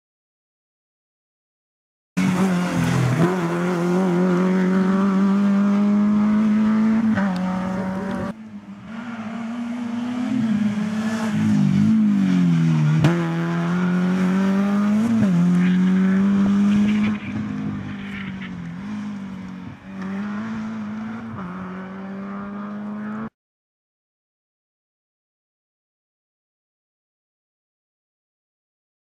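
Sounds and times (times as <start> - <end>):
rally car engine at full throttle: 2.2 - 23.3.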